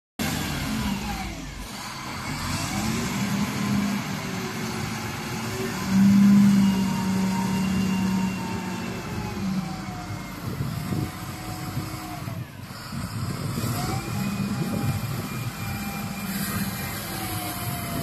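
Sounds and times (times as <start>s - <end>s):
diesel engine working under load: 0.2s - 18.0s.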